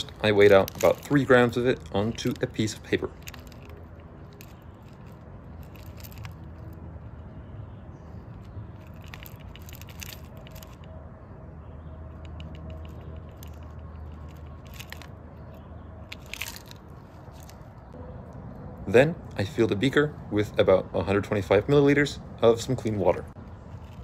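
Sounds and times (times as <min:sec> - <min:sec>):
metal lumps rattling onto paper: 0:00.0 - 0:06.5.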